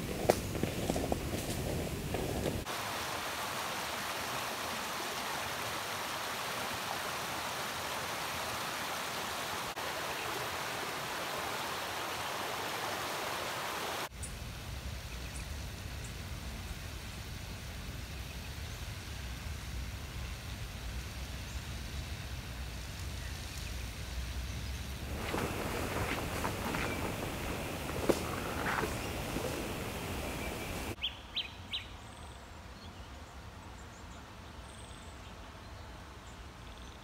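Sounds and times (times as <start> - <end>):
creek rushing over rocks: 0.0 - 14.1, 25.0 - 31.0.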